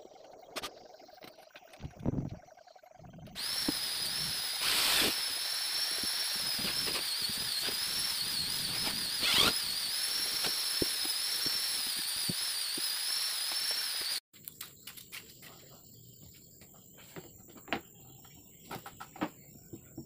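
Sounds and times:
electric drill whining: 3.4 - 14.2.

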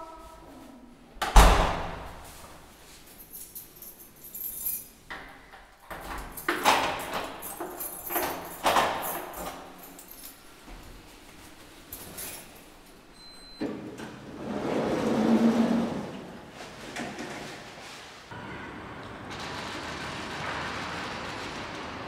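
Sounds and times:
wooden door slamming shut: 1.2 - 2.2
keys jangling in door lock: 3.1 - 10.5, 11.9 - 12.8.

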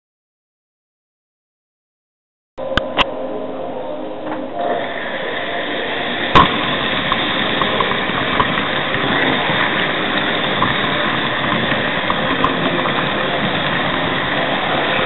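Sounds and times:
model train running on track: 4.7 - 15.0.

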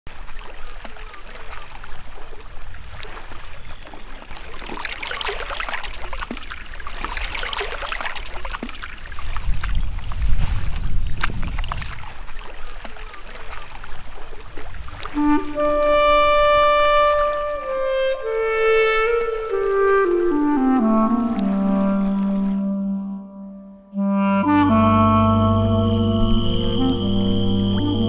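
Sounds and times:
paddle splashing in water: 0.1 - 23.0
water dripping off paddle: 0.2 - 17.6
low rumble: 24.8 - 28.0.

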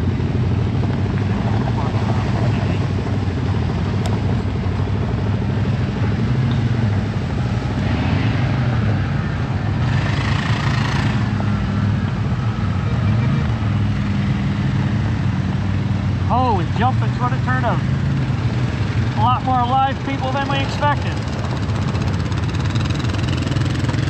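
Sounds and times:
atv engine running: 0.0 - 24.0.

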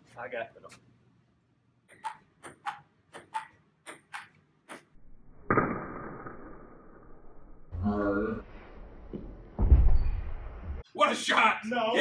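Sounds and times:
ping-pong ball clicking off paddles: 1.9 - 4.9.

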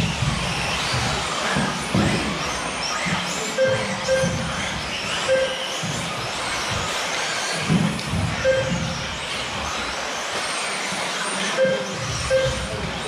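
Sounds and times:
rc car motor whine: 0.0 - 13.0.

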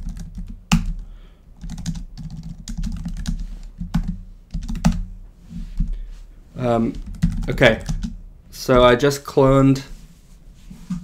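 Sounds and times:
rapid keyboard typing: 0.0 - 1.0, 1.6 - 5.1, 6.8 - 8.2.

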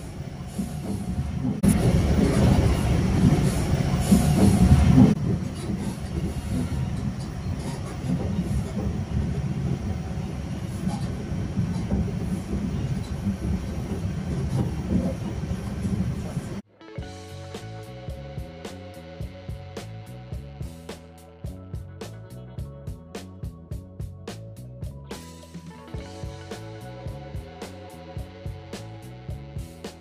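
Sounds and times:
train wheels rumbling: 0.0 - 16.6.

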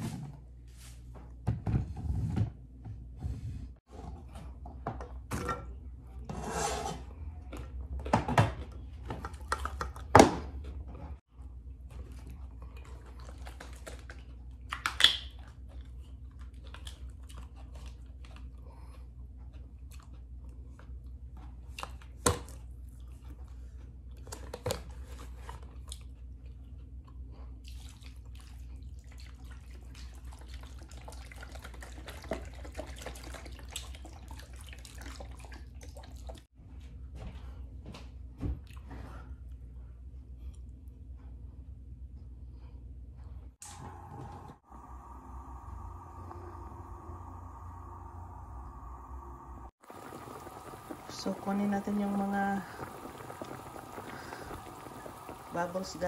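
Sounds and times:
low steady hum: 35.4 - 56.0.

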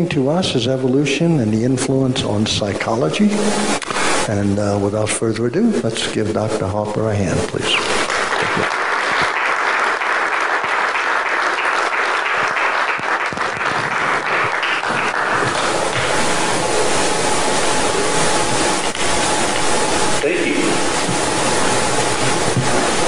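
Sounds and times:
steady hiss: 0.0 - 23.0
audience applauding: 7.8 - 16.6.

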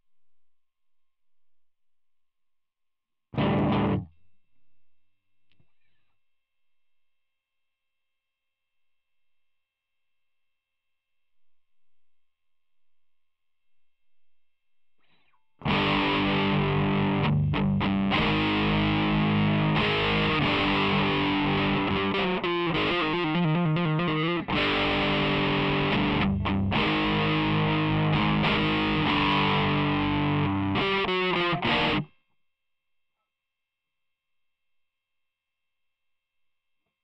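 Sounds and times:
distorted electric guitar: 3.4 - 4.1, 15.6 - 32.1.

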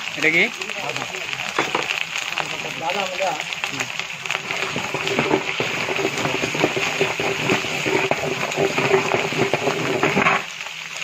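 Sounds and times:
steady hiss: 0.0 - 11.0
ladle scraping metal pot: 4.3 - 10.5.

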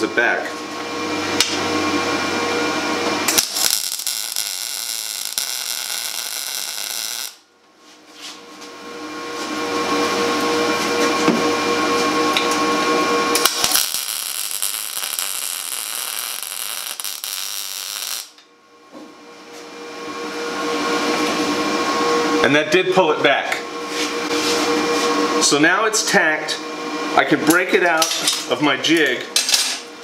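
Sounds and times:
arc welding: 3.2 - 7.5, 13.3 - 18.4.

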